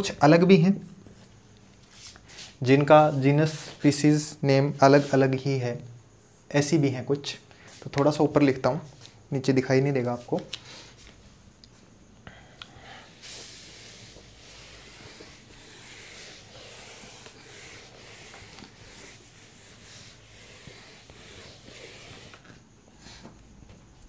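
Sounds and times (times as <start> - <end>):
eraser scrubbing whiteboard: 4.8 - 5.4, 13.0 - 22.6.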